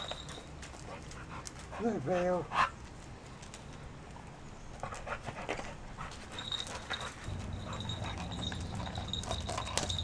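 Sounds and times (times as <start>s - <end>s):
small bell jingling: 0.0s - 0.6s, 6.3s - 10.0s.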